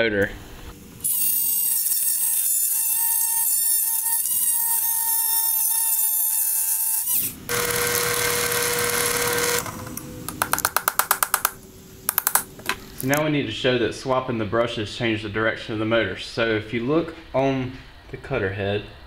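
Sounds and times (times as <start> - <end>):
oscillating tool cutting steel: 1.0 - 9.7.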